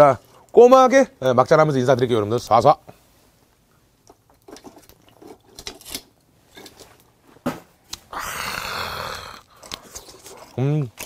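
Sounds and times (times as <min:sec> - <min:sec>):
person gulping drink: 0:08.1 - 0:10.6.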